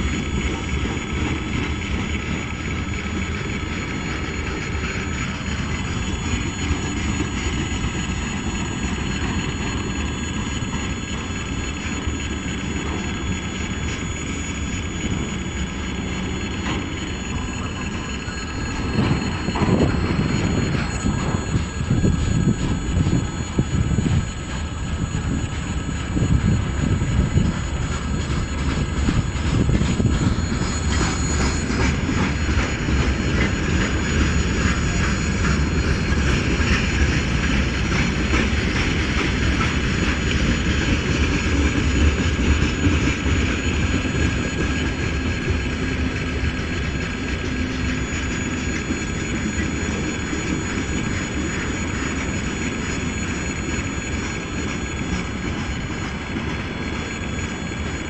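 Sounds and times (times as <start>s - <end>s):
freight train wheels rumbling: 0.0s - 58.0s.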